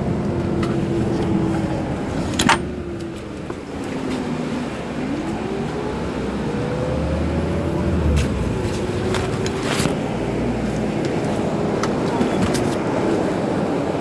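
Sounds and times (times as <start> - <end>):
rising pitched tone: 0.0 - 10.6
bus engine idling: 0.0 - 14.0.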